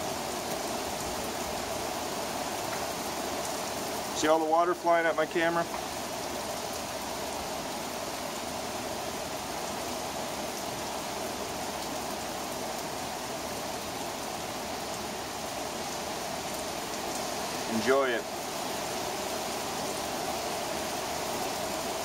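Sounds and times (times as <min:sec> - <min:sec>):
heavy rain pouring: 0:00.0 - 0:22.0
raindrops ticking: 0:02.6 - 0:03.0.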